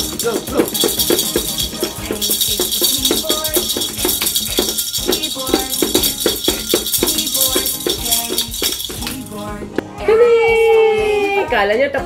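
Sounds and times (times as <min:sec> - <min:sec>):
mallets tapping toy drum: 0:00.0 - 0:09.5
plastic maracas rattling: 0:00.0 - 0:09.6.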